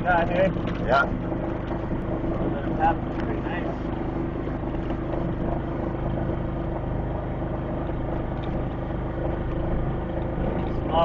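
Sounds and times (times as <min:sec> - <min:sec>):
golf cart engine running: 0:00.0 - 0:11.0.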